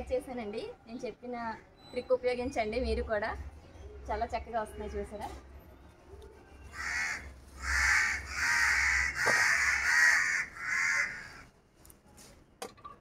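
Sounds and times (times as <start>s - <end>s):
crow cawing: 6.8s - 11.5s.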